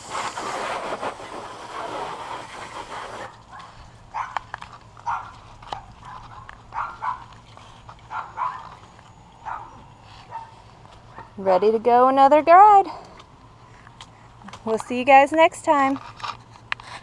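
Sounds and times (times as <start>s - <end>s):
water spraying hiss: 0.0s - 3.5s
dog barking: 3.5s - 4.4s, 5.0s - 7.3s, 8.1s - 8.8s, 9.4s - 11.4s.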